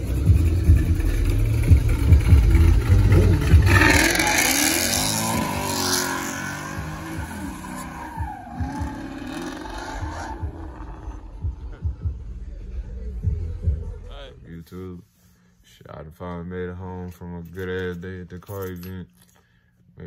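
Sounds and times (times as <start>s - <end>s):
car engine running hard: 0.0s - 11.8s
tire squeal: 3.4s - 11.4s.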